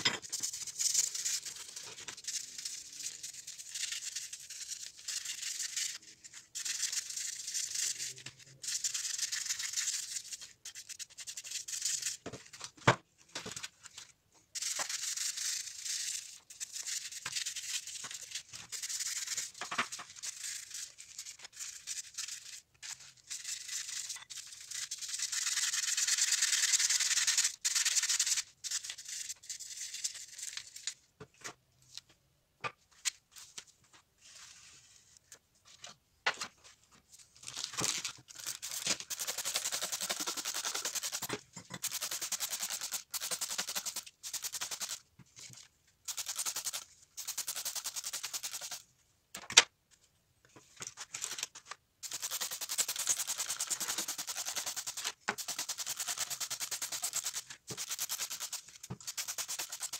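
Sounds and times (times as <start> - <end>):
toothbrush scrubbing metal: 38.3 - 45.0, 46.1 - 48.8, 52.0 - 59.9.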